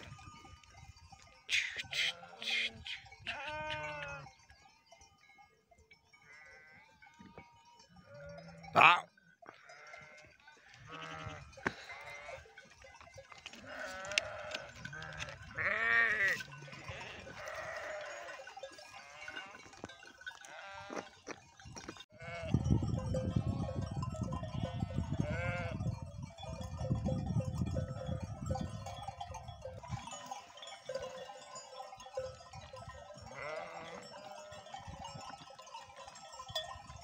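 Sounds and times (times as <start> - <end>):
sheep bleating: 1.5 - 4.3, 6.3 - 12.5, 13.5 - 18.4, 19.0 - 19.6, 20.4 - 21.2, 22.2 - 22.6, 24.6 - 25.8, 33.3 - 34.6.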